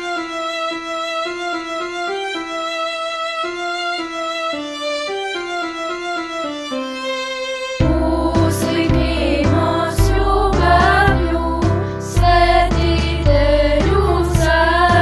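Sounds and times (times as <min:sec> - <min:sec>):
solo violin melody: 0:00.0 - 0:08.1
fuller music: 0:00.0 - 0:15.0.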